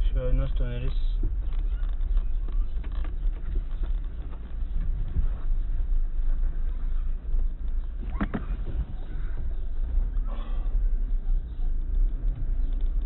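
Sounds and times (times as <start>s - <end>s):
tyres rumbling on gravel road: 0.0s - 13.0s
car knocks and rattles: 0.3s - 6.6s, 7.3s - 10.2s.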